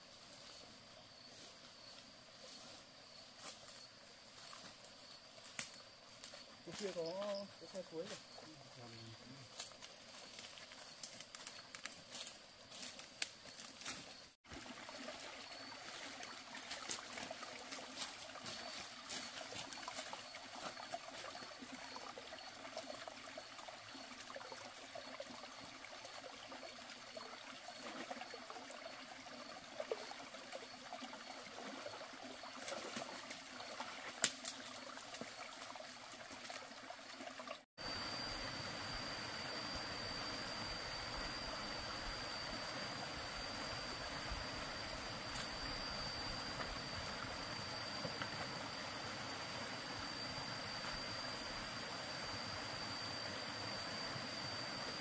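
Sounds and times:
faint high whine: 0.0s - 35.8s, 37.8s - 55.0s
water trickling: 14.5s - 37.6s.

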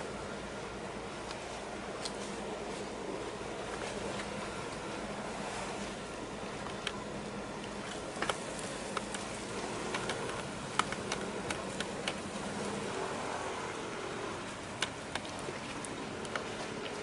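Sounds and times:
background noise wash: 0.0s - 17.0s
ship machinery low hum: 0.0s - 17.0s
small sharp clicks: 7.6s - 12.3s.

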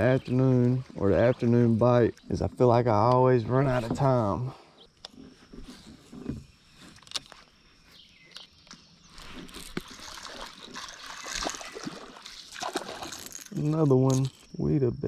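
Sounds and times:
fish splashing: 9.1s - 13.6s.

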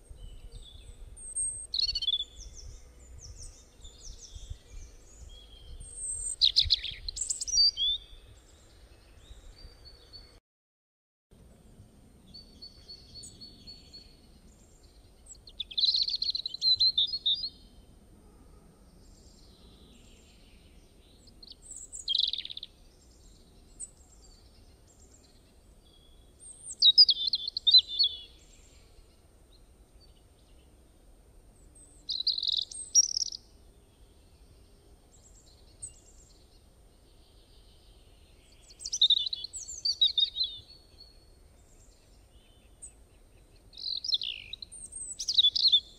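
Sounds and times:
bird chirps and warbles: 0.0s - 10.4s, 11.4s - 45.9s
faint low background noise: 11.3s - 45.9s.

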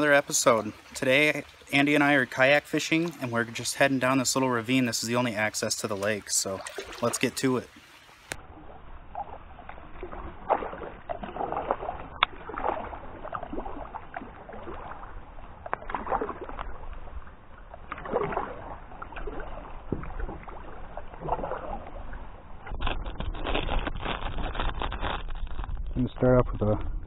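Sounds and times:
paddle swishing through water: 0.0s - 25.8s
plastic package crackling: 22.8s - 26.0s.

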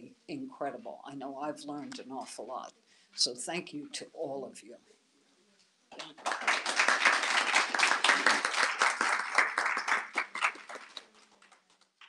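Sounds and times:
audience applauding: 6.0s - 11.9s.

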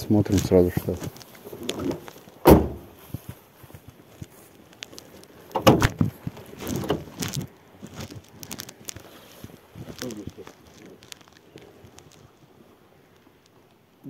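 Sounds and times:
loud thump: 2.4s - 2.9s.

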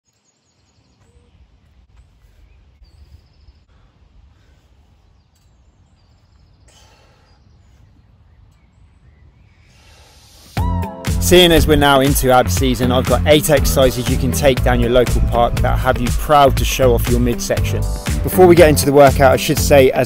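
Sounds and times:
bird chirps and trills: 0.0s - 10.6s.

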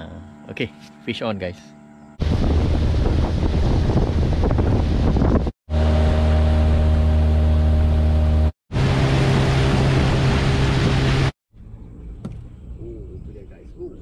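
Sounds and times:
outboard motor running: 0.0s - 11.3s
wind and water rushing: 2.2s - 6.4s, 8.7s - 11.3s.

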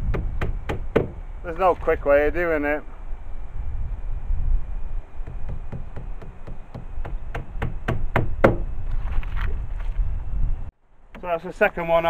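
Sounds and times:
wind rumbling on microphone: 0.0s - 10.8s.

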